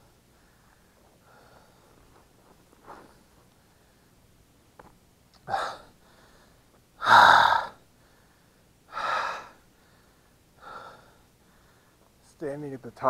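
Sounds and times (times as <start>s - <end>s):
man breathing hard: 0.3s - 2.1s, 5.4s - 12.1s.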